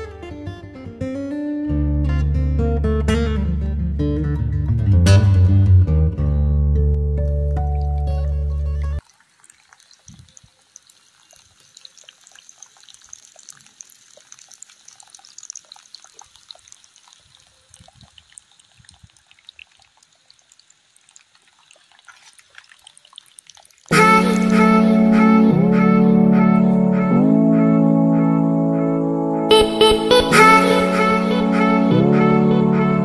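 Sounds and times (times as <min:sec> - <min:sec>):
water splashing into muddy channel: 0:07.6 - 0:24.0.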